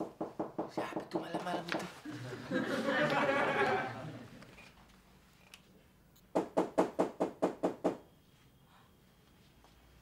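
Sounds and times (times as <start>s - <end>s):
knocking on a door: 0.0s - 1.9s, 6.4s - 8.0s.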